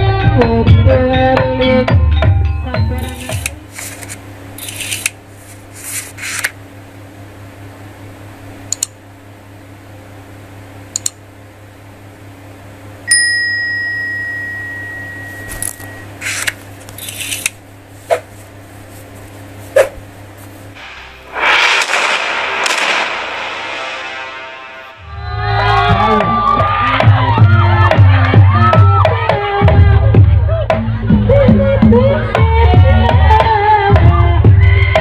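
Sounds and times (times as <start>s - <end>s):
low steady hum: 0.0s - 34.6s
mouse clicks: 8.7s - 9.0s, 11.0s - 11.2s
bell ding: 13.1s - 16.1s
whooshes: 20.8s - 25.6s.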